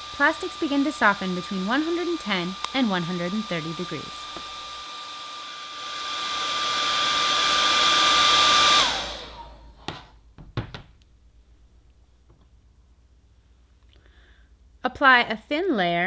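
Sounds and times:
hairdryer blowing: 0.0 - 10.2.

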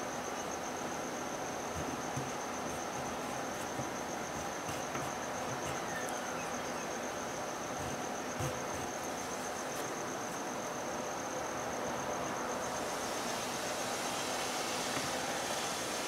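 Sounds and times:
constant hiss: 0.0 - 16.0
pulsing insect trill: 0.0 - 16.0
pencil drawing on paper: 1.8 - 6.1, 7.8 - 9.1.

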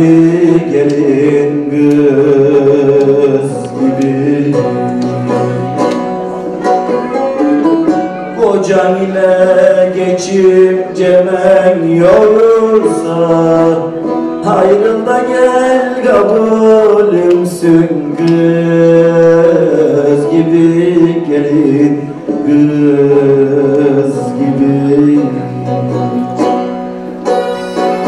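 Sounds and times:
man singing folk song: 0.0 - 27.0
strummed long-necked lute: 0.0 - 28.0.

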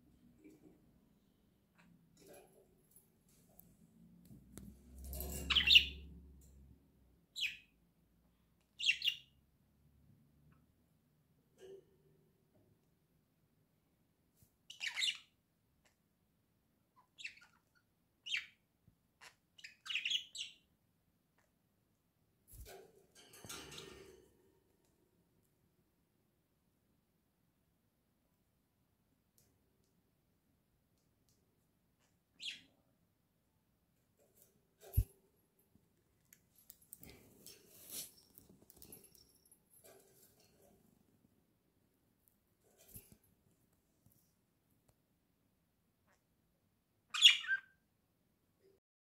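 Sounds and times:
rustling and fluttering in cage: 2.2 - 6.7, 22.5 - 24.8, 34.1 - 35.6, 36.5 - 41.2, 42.6 - 43.6
budgerigars chirping: 47.2 - 47.6.

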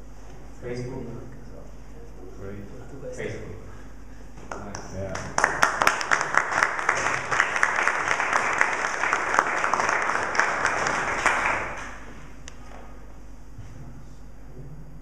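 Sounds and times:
audience clapping: 4.5 - 12.1.

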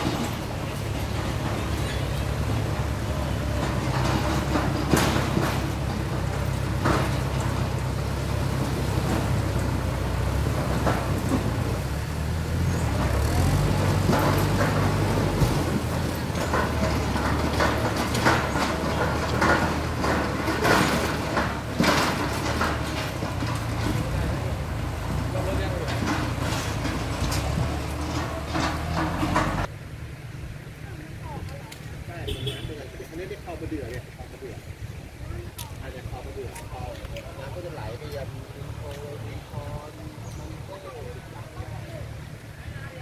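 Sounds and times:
trailer knocks and rattles: 0.0 - 29.8
tractor engine running: 0.0 - 43.0.

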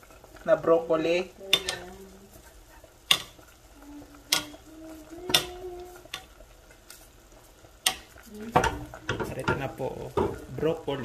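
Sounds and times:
utensil tapping a pot: 1.5 - 6.5, 7.7 - 10.9.

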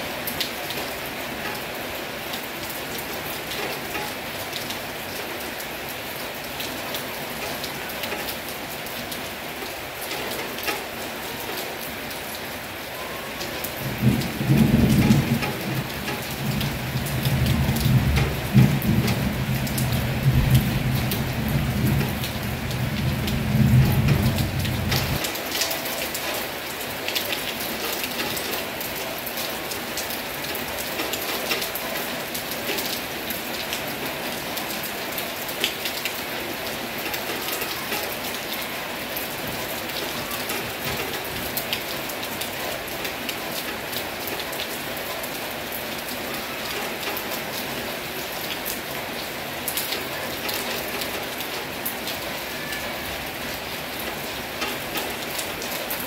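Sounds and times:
heavy rain falling: 0.0 - 56.0
sharp raindrop ticks: 9.1 - 11.9, 13.8 - 33.0.

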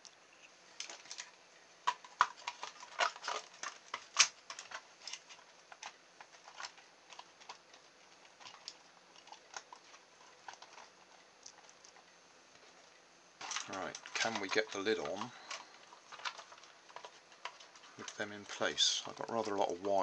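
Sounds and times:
plastic toy clicks and knocks: 1.9 - 7.7, 13.4 - 19.7.

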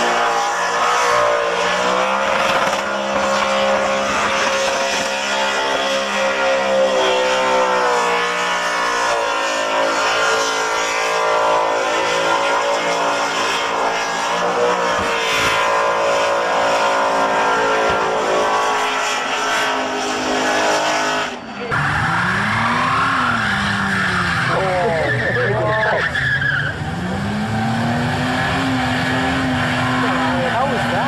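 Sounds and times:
car engine revving high: 0.0 - 31.0.

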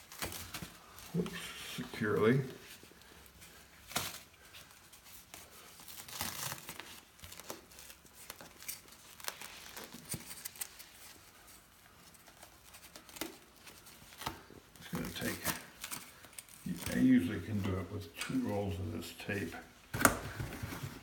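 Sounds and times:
adhesive tape peeling and tearing: 5.8 - 11.2.

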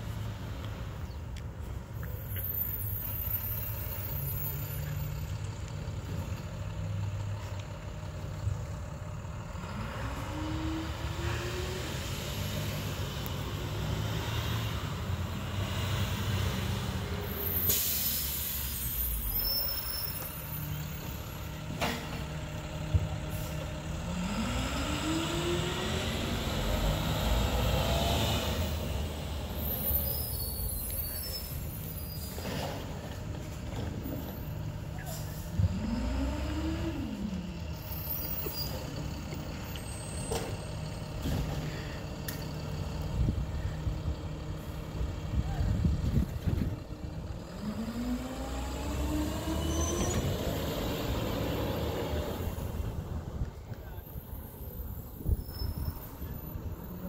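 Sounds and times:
truck diesel engine revving: 5.9 - 19.8, 20.4 - 30.0, 32.2 - 53.5
air brake hiss: 17.3 - 20.2.

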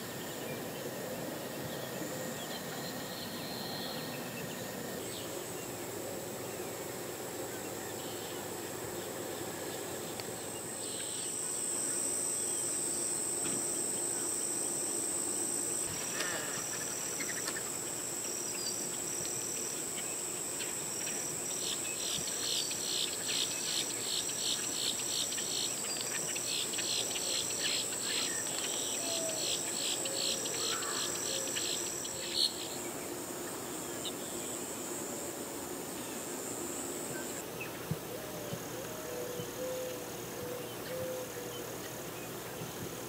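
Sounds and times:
insect pulsing rhythmically: 0.0 - 43.0
insect high-pitched trill: 1.7 - 6.4, 10.4 - 37.7.

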